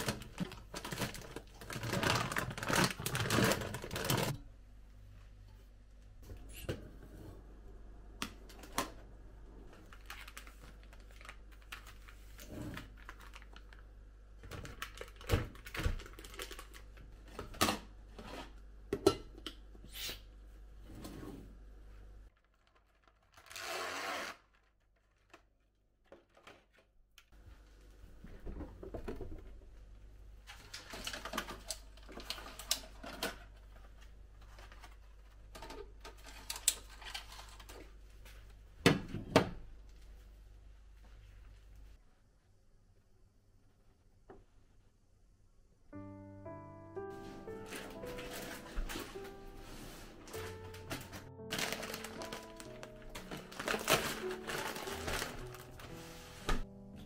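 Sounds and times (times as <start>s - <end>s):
packaging rustle: 0.0s - 4.4s, 9.8s - 13.8s, 14.4s - 17.0s, 47.4s - 56.6s.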